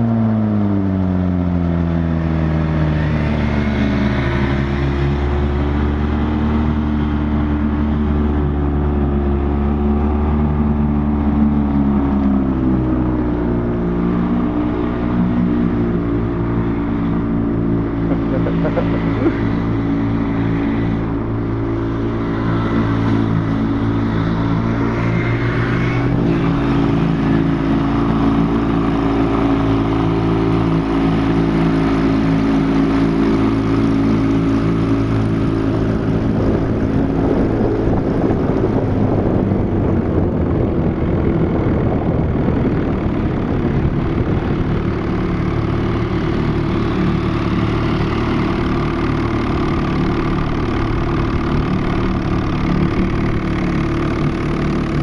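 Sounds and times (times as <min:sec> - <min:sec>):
outboard motor running: 0:00.0 - 0:55.0
rushing water and air: 0:17.7 - 0:55.0.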